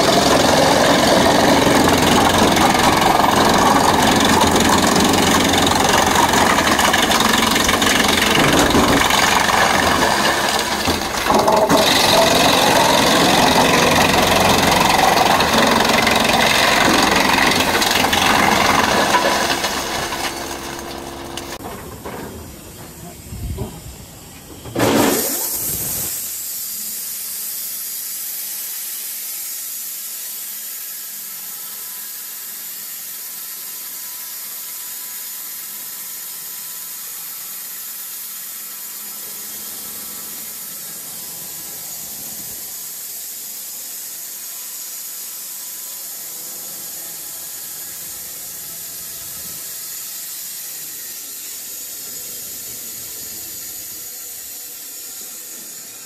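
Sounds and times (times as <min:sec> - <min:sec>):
band saw cutting timber: 0:00.0 - 0:21.8.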